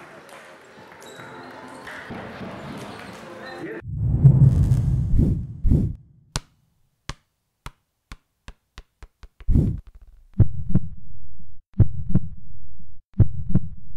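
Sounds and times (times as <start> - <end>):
low rumble: 3.8 - 6.1
deep boom: 3.8 - 6.2.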